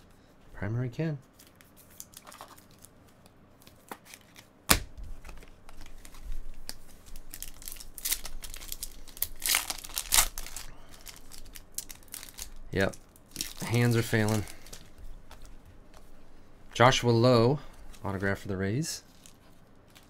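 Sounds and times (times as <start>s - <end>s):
foil wrapper tearing and crinkling: 1.4s - 2.9s, 5.8s - 15.5s, 19.1s - 20.0s.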